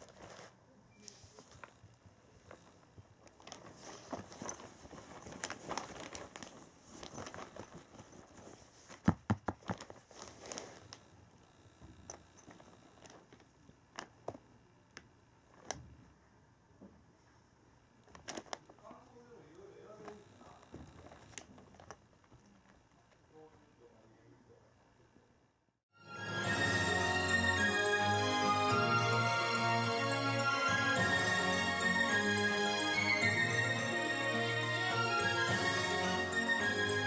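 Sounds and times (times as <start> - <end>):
fabric and plastic rustling: 0.0 - 11.2, 12.1 - 14.4, 18.0 - 19.2, 19.9 - 23.5.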